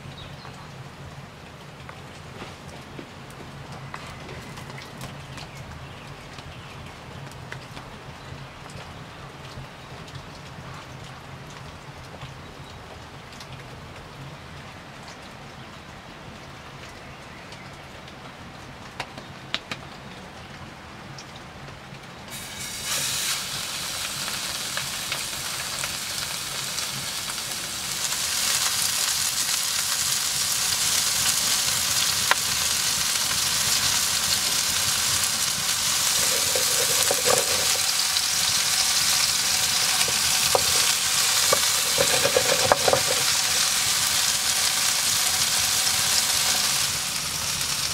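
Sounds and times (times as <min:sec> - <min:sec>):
burger patty sizzling in skillet: 0:22.3 - 0:47.9
fat spitting and popping: 0:35.8 - 0:43.8.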